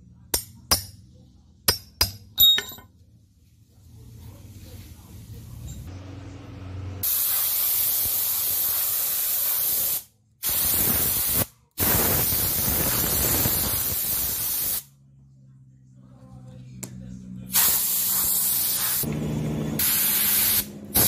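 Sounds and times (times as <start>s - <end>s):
spray gun hissing: 17.6s - 19.1s, 19.8s - 21.0s.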